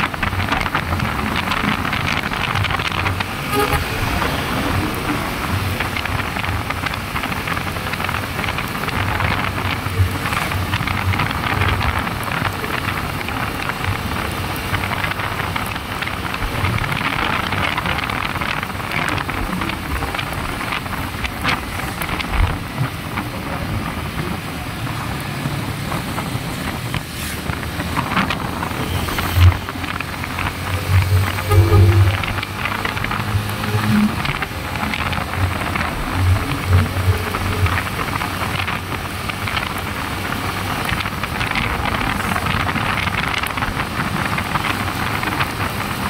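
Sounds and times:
tyres hissing on wet road: 0.0 - 46.0
wind rushing over microphone: 0.0 - 46.0
motorcycle engine running: 27.5 - 45.9.

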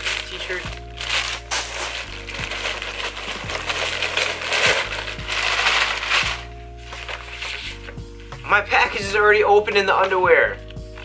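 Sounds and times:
plastic packaging crinkling: 0.0 - 7.9.

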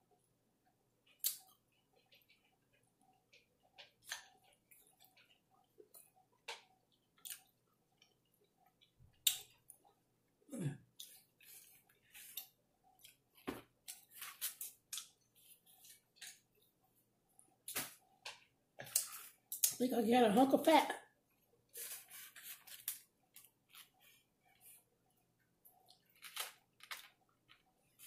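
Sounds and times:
wet chewing and lip smacks: 1.0 - 10.0.

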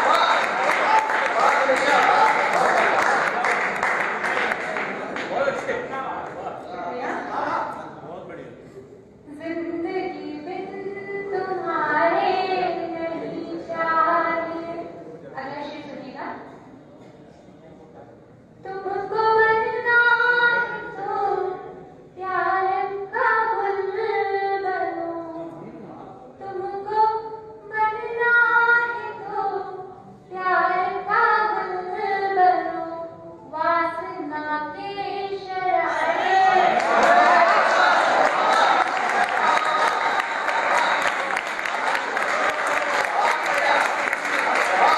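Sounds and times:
woman singing into a microphone: 9.3 - 14.8, 26.4 - 35.9
woman singing into microphone: 9.3 - 14.8.

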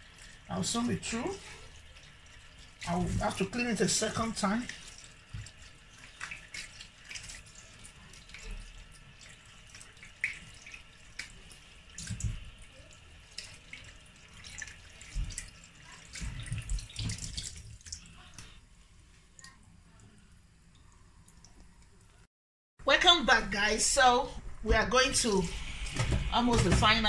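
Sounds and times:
tap water running into a sink: 0.0 - 18.6, 25.2 - 27.0
water splashing: 0.0 - 18.6.

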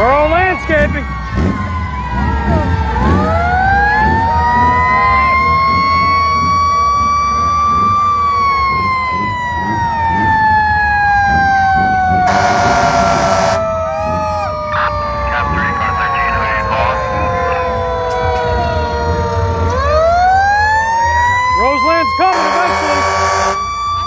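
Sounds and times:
fire truck siren wailing: 0.0 - 24.0
lower siren tone: 0.0 - 24.0
rumble of vehicles: 0.0 - 24.0
harsh horn blast: 12.3 - 13.6, 22.2 - 23.7.

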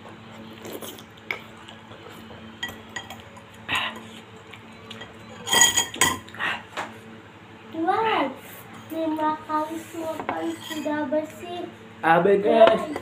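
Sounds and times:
fork and spoon clinking on bowl: 4.9 - 6.2.

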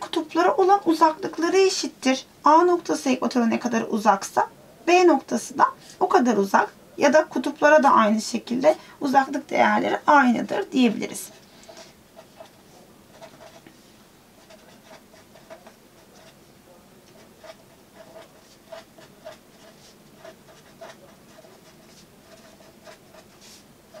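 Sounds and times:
felt-tip pen writing on paper: 11.3 - 13.7, 14.4 - 16.4, 17.0 - 24.0.

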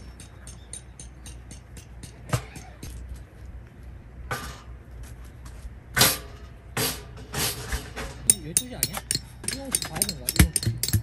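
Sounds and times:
metal stove pipes clanking: 6.0 - 11.0.

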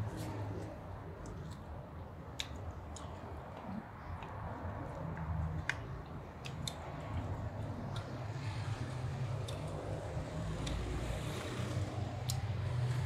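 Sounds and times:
chewing meat: 0.5 - 12.9
wet mouth clicks and lip smacks: 2.3 - 4.4, 5.1 - 7.3.

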